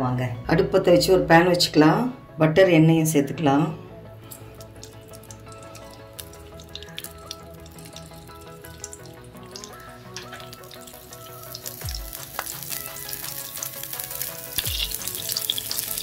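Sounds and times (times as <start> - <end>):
soft background music: 0.0 - 16.0
butter sizzling in a pan: 4.3 - 16.0.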